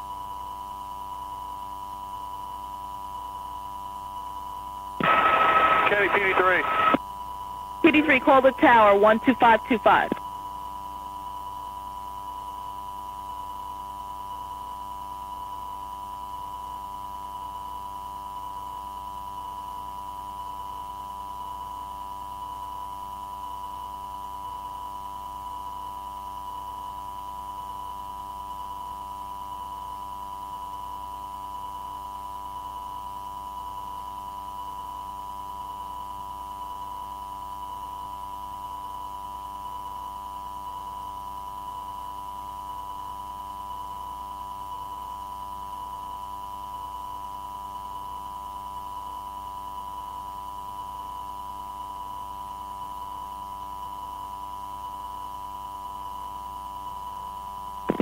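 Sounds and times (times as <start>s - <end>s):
low hum: 5.0s - 7.0s.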